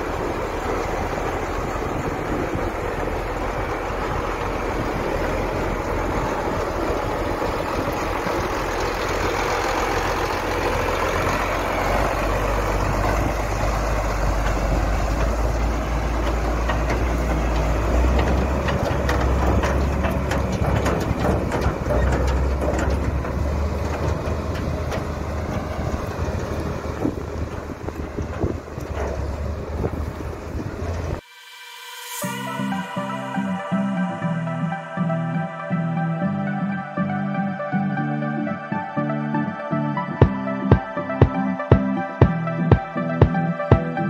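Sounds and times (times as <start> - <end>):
heavy tractor engine running: 0.0 - 31.2, 32.2 - 44.0
clattering: 14.4 - 26.2.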